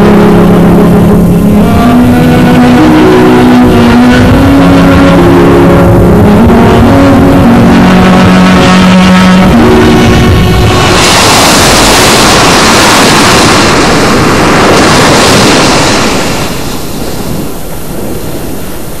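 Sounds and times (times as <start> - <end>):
rushing water: 6.4 - 19.0.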